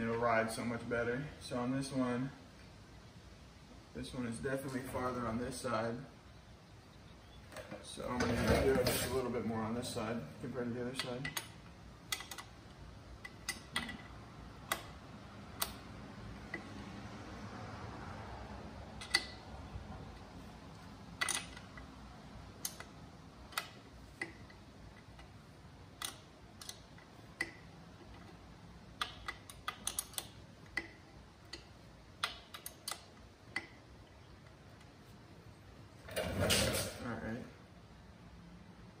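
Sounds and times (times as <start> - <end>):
wrench clicking on metal bolt: 10.9 - 12.6, 13.2 - 15.0, 19.0 - 19.4, 21.2 - 21.9, 26.0 - 33.8.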